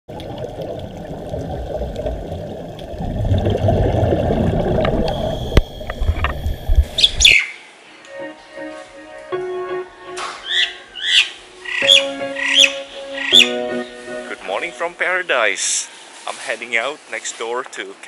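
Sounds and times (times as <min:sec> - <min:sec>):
muffled underwater rumble: 0:00.1 - 0:07.3
bird chirping: 0:07.0 - 0:07.7, 0:10.4 - 0:14.8
soft music: 0:07.8 - 0:16.8.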